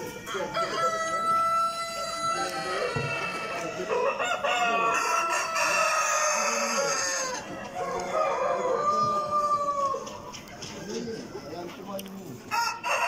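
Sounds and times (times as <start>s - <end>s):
roosters crowing: 0.0s - 11.8s, 12.4s - 13.0s
hens clucking: 0.0s - 13.0s.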